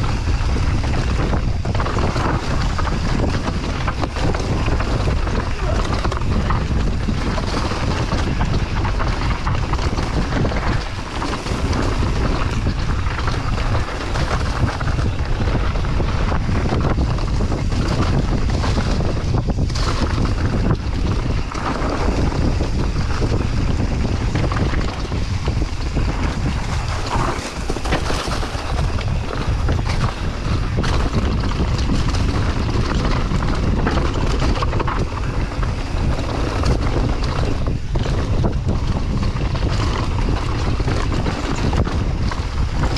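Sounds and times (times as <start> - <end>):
bike rattles and knocks: 0.0 - 42.9
bike tyre noise: 0.0 - 42.9
wind buffeting microphone: 0.0 - 42.9.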